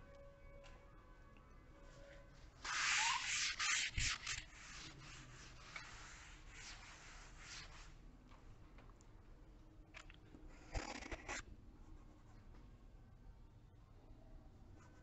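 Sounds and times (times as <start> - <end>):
cloth wiping chalkboard: 2.6 - 8.0.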